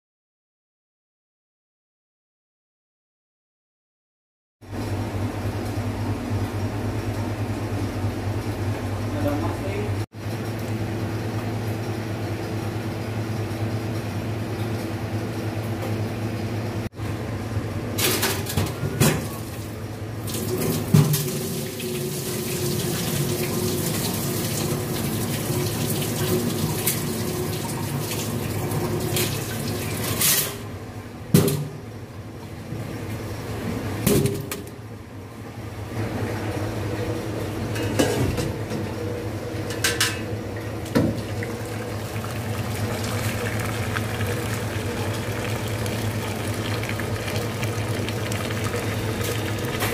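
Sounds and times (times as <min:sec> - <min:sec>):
tap water running into a sink: 0:20.2 - 0:30.2, 0:40.9 - 0:49.9.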